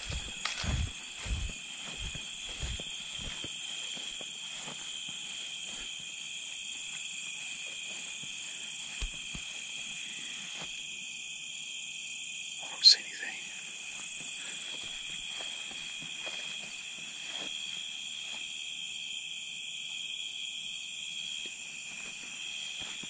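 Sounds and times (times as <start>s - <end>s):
footsteps through grass: 0.0s - 10.9s, 13.6s - 18.6s, 21.5s - 23.0s
insects droning: 0.0s - 23.0s.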